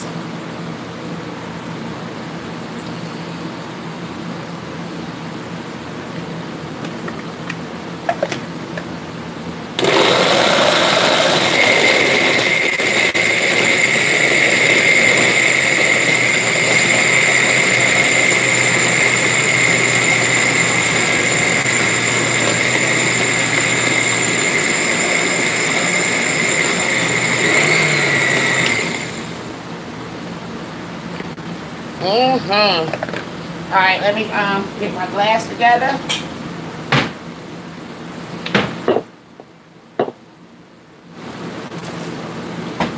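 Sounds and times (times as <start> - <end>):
blender crushing ice: 9.8 - 29.5.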